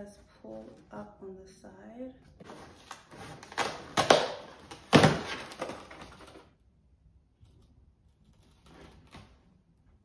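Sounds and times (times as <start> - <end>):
cardboard rustling: 2.4 - 6.6.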